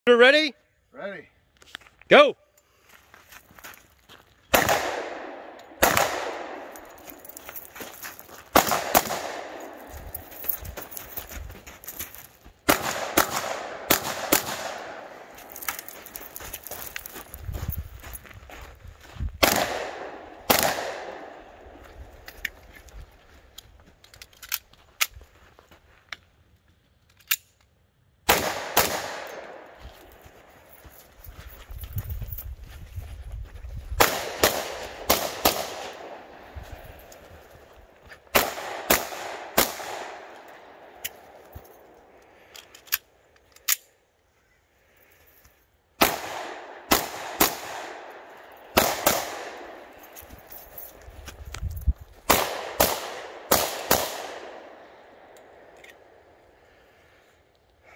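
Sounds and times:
pistol shots echoing: 4.5 - 7.1, 8.5 - 9.9, 12.7 - 15.6, 19.4 - 21.8, 28.3 - 29.8, 34.0 - 36.5, 38.3 - 41.3, 46.0 - 50.1, 52.3 - 55.8.

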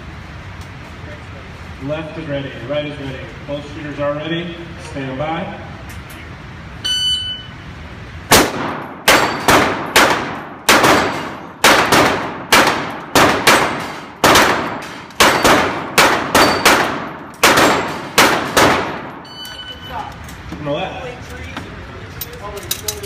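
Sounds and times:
rapid pistol fire: 8.3 - 19.2.

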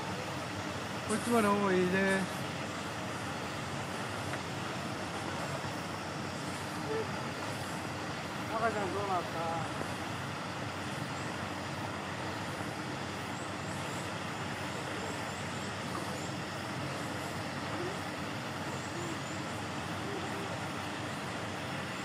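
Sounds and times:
steady background noise: 0.0 - 22.0.

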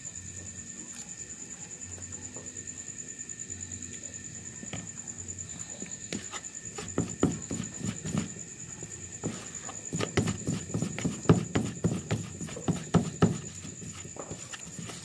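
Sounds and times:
faint handling sounds: 3.9 - 15.0
paddle scraping plastic bowl: 6.1 - 8.4, 9.2 - 15.0.

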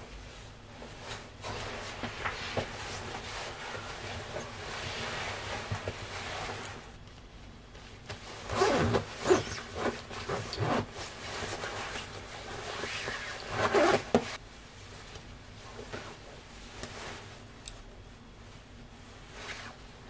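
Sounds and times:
jacket fabric rustling: 0.0 - 7.0, 7.7 - 14.8
zip being done up: 8.4 - 11.0, 12.7 - 14.4.

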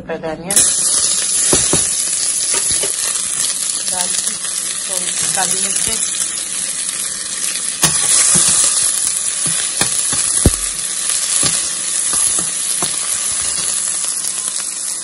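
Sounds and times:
onion sizzling in hot oil: 0.5 - 15.0
metal spatula scraping and knocking pan: 1.5 - 3.1.

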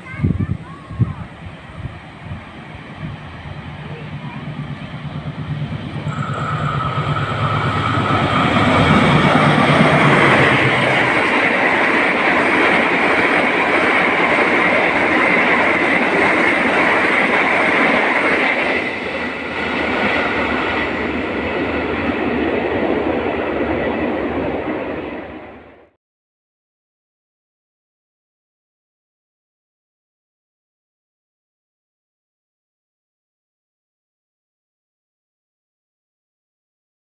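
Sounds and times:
diesel locomotive engine running: 1.3 - 24.9
wheels rolling on rail: 1.4 - 25.6.

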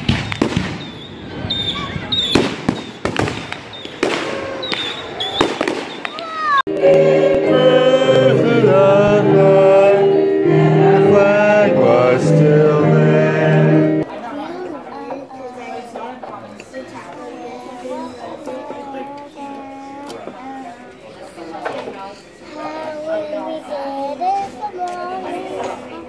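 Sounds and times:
fireworks bangs and crackles: 0.0 - 6.3
music with singing voices: 6.7 - 14.0.

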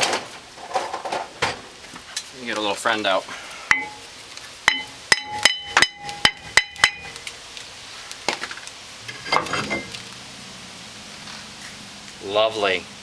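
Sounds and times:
hammer striking ringing rotor: 4.7 - 7.1.

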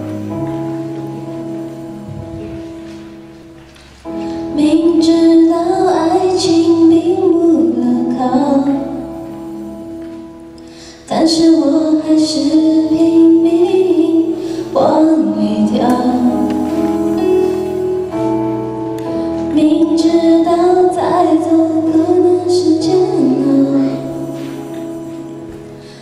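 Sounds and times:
instrumental accompaniment: 0.0 - 26.0
woman singing into microphone: 4.5 - 9.1, 11.1 - 17.2, 19.5 - 24.7.

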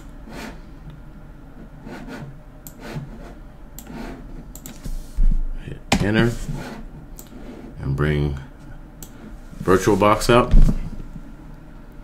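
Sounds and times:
low room hum: 0.0 - 12.0
computer mouse clicks: 3.8 - 4.8.

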